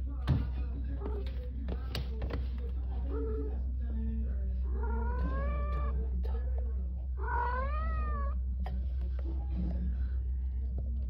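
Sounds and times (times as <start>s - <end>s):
steady low hum: 0.0s - 11.0s
cat meowing: 4.8s - 6.0s, 7.2s - 8.4s.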